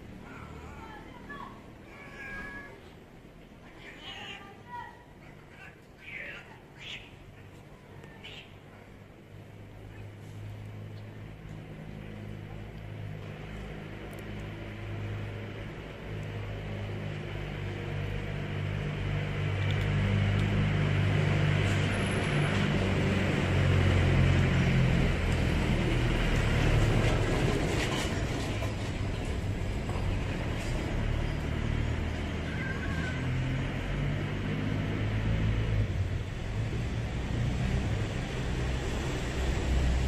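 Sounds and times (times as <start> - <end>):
vehicle engine humming: 5.5 - 40.0.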